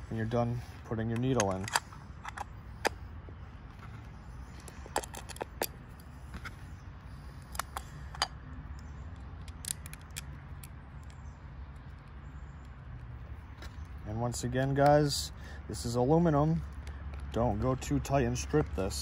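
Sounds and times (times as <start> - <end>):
metal parts clicking and tapping: 4.5 - 6.1.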